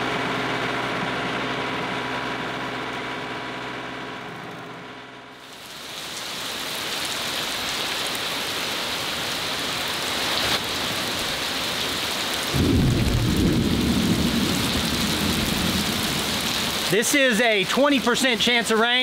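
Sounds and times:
heavy rain pouring: 5.4 - 19.0
deep rumble of thunder: 12.5 - 16.8.

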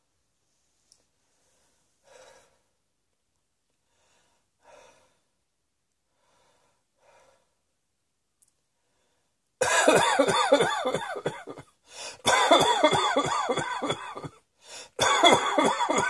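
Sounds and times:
person breathing softly: 1.0 - 2.8, 3.8 - 5.4, 6.1 - 7.7, 8.7 - 9.5, 11.8 - 12.2, 14.6 - 15.0
harsh coughing: 9.6 - 16.0.

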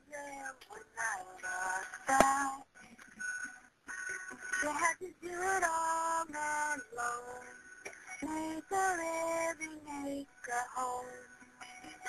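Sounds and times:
woman singing slow melody: 0.0 - 2.7, 4.6 - 7.6, 8.2 - 12.0.

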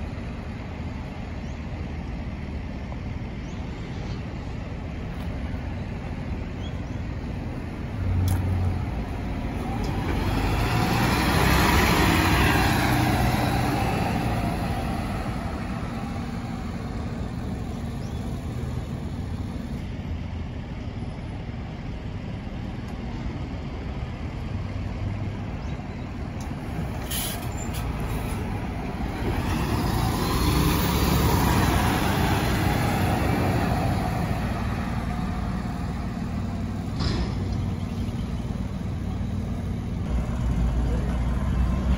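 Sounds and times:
buses pulling away: 0.0 - 41.9
air brake hiss: 27.0 - 27.8.

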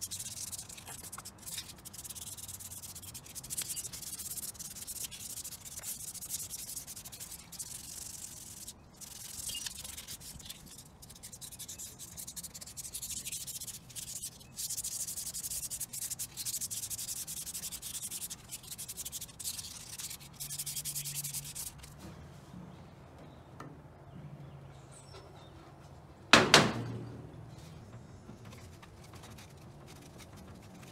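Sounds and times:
sandpaper scraping: 0.0 - 22.0, 28.5 - 30.9.

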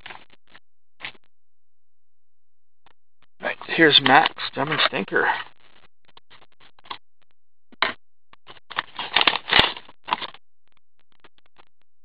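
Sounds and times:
paper rustling: 8.7 - 10.4.

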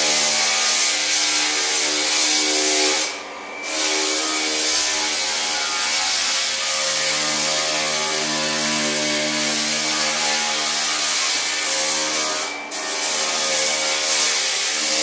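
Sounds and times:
floor sander motor hum: 0.0 - 15.0
sanding drum hissing on wood: 0.0 - 15.0.

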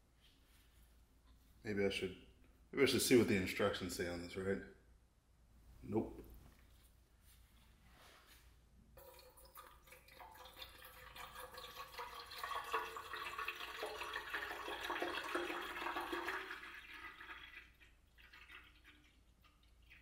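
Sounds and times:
liquid pouring into metal tank: 9.0 - 20.0.

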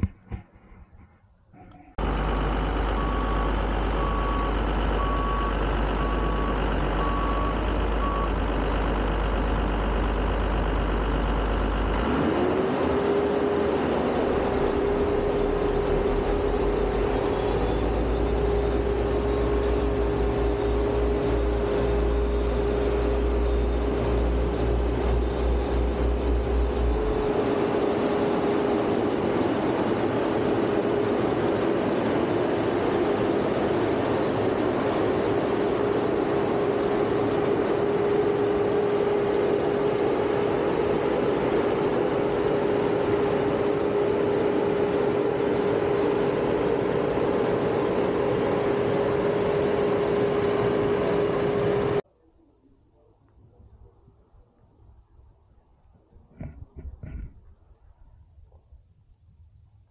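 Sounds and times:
road roller engine running: 0.0 - 52.1
steady whine: 0.0 - 54.6
reversing alarm beeping: 1.6 - 28.5.

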